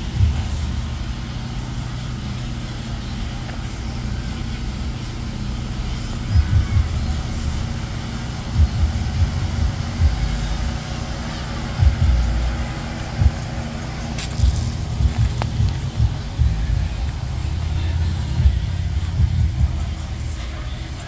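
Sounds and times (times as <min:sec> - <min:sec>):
dull low thumps: 0:00.0 - 0:01.2, 0:03.2 - 0:10.8, 0:11.6 - 0:20.4
vehicle engines idling: 0:00.0 - 0:21.0.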